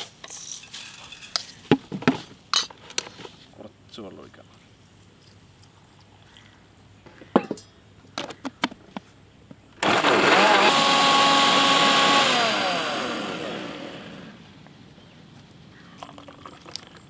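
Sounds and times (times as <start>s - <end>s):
electric blender whirring: 9.8s - 14.4s.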